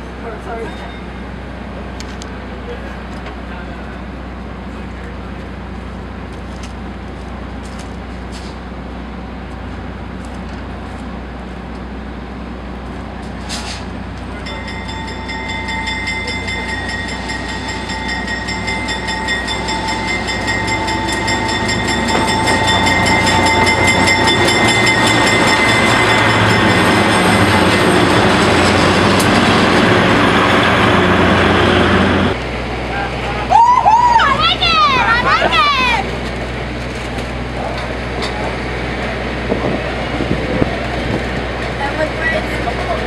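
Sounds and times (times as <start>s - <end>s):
diesel locomotive engine hum: 0.0s - 43.0s
high metallic squeal: 14.9s - 29.2s.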